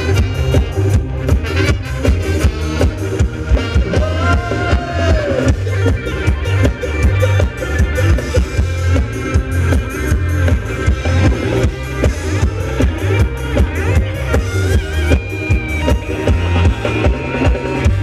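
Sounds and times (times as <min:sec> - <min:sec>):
live band playing dance music: 0:00.0 - 0:18.0.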